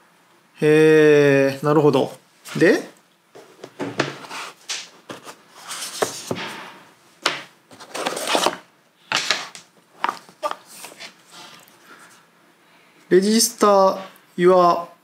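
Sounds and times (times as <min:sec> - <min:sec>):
cardboard and paper rustling: 0:03.4 - 0:06.4, 0:07.7 - 0:11.7.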